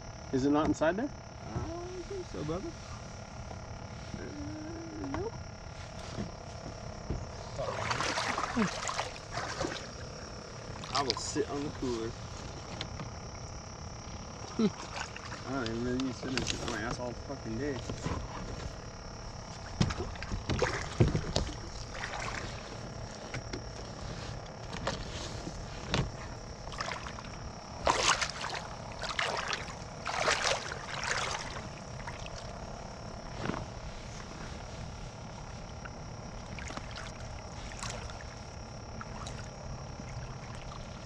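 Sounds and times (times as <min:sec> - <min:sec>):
quiet outdoor background: 0:00.0 - 0:41.0.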